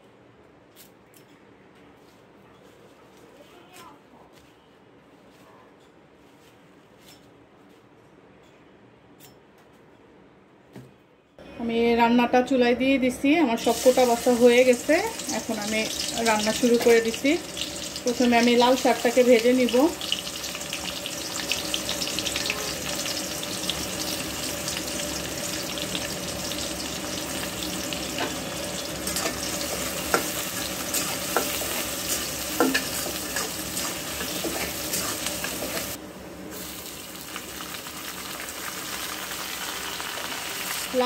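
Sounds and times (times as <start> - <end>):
onions sizzling in hot oil: 13.6 - 41.0
metal spatula scraping a pan: 28.2 - 36.0.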